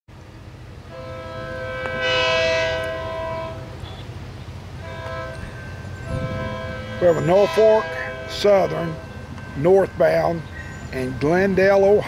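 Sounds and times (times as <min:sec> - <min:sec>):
locomotive air horn blasts: 0:00.8 - 0:11.6.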